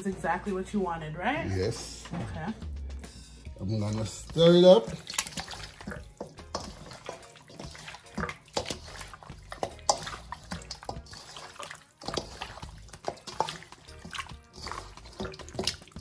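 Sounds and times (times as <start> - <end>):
ribs squelching in marinade: 3.5 - 16.0.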